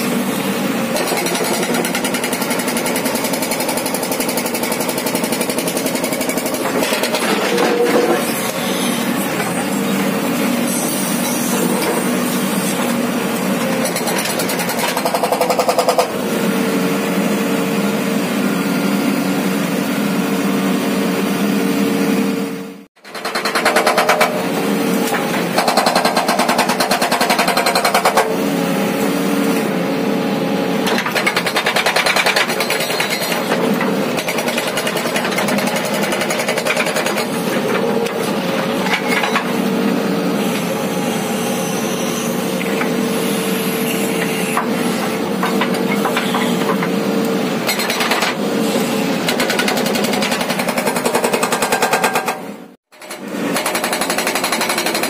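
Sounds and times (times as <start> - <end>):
hydraulic rock breaker hammering: 0.8 - 16.2, 23.0 - 28.5, 30.8 - 39.7, 43.9 - 55.0.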